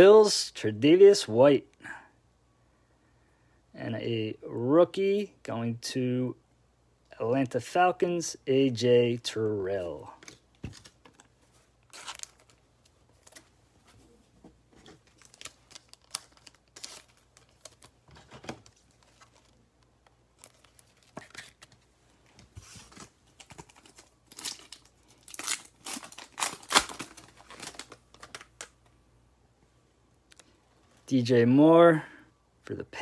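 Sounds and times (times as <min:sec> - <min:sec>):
cards being handled: 0:10.1 - 0:28.9
foil wrapper crinkling and tearing: 0:11.8 - 0:12.6, 0:15.0 - 0:19.6, 0:23.4 - 0:28.7.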